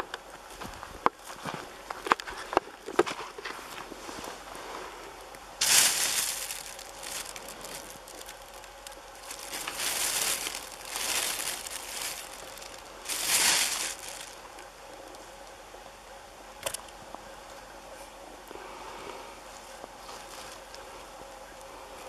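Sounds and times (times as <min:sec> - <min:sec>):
plastic bag crinkling: 0:05.6 - 0:15.2.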